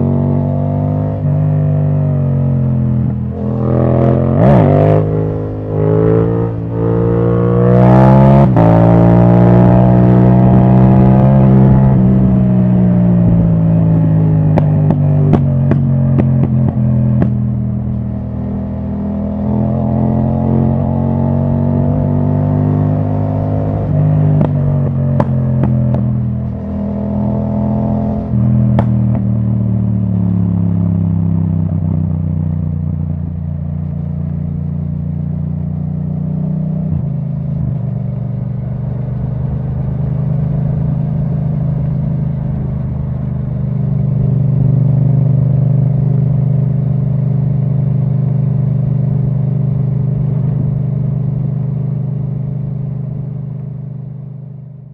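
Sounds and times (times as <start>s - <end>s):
motorcycle engine: 0.0s - 54.9s
exhaust crack: 14.4s - 18.1s, 23.8s - 26.9s, 28.2s - 29.6s.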